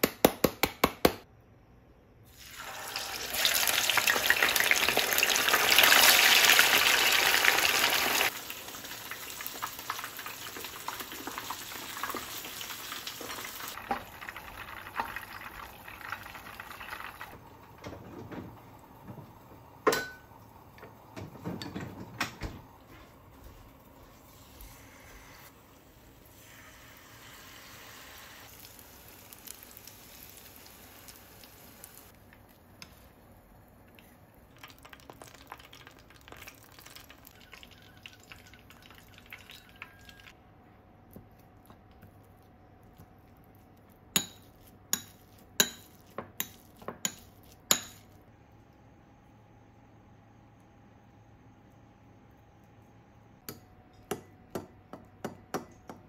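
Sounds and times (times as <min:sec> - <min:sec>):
oil sizzling in frying pan: 0:02.3 - 0:17.4, 0:26.3 - 0:32.2.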